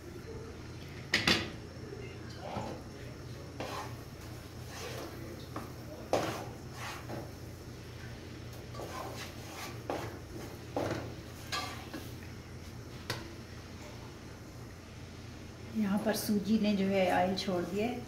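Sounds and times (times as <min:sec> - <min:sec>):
wooden spoon scraping a pot: 0:03.6 - 0:07.3, 0:08.7 - 0:12.1.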